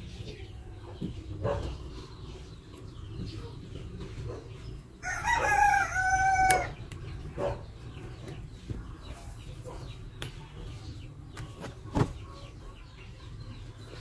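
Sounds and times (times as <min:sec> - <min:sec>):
rooster crowing: 0:05.0 - 0:06.8.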